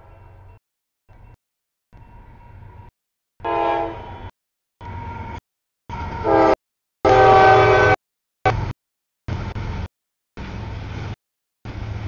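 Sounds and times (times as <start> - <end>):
low train rumble: 2.0 - 8.7, 9.3 - 12.0
locomotive air horn: 3.4 - 4.3, 6.2 - 8.7.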